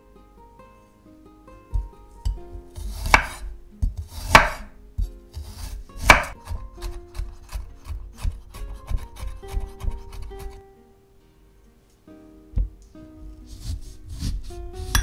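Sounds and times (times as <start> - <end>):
knife chopping on wooden board: 2.5 - 10.5
knife slicing on wooden board: 2.6 - 10.6, 13.5 - 15.0.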